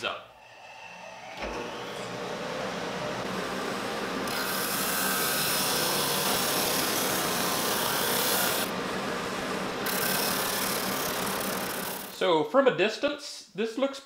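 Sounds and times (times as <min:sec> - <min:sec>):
sander motor hum: 0:00.6 - 0:12.2
drum sander sanding wood: 0:01.6 - 0:12.1.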